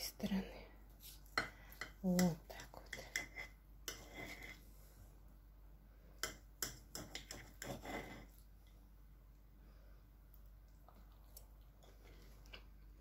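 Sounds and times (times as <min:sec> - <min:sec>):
cutlery scraping plate: 0:02.9 - 0:04.6, 0:06.2 - 0:08.4.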